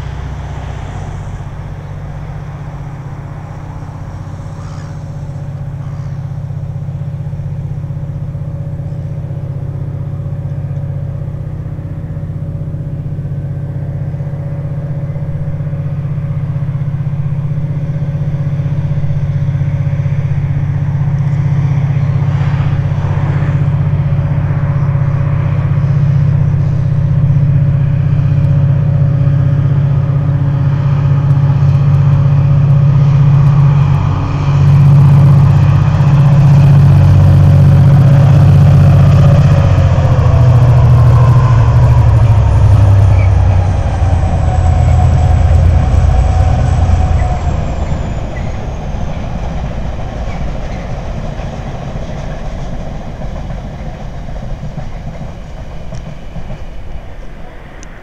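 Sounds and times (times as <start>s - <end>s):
diesel locomotive engine drone: 0.0s - 58.0s.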